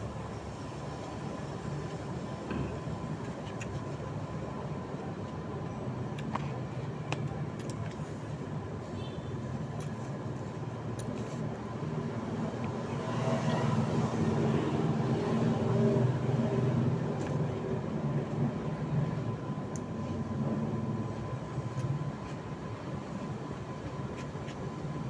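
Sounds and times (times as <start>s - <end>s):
passing vehicle engine hum: 12.2s - 18.7s.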